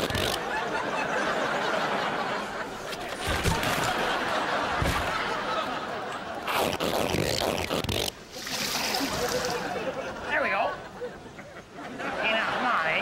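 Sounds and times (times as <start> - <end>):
studio audience laughing: 0.3 - 6.5, 8.8 - 13.0.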